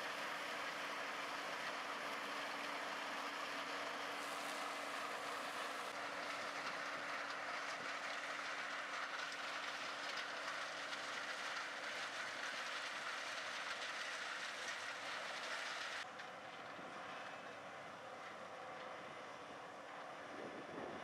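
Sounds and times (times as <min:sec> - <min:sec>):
combine harvester running: 0:00.0 - 0:21.0.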